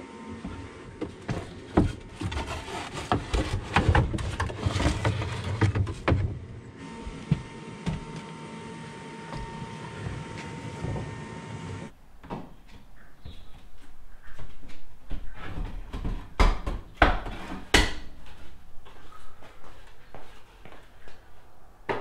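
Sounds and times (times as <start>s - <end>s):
wooden pallet knocking and scraping: 1.0s - 6.6s.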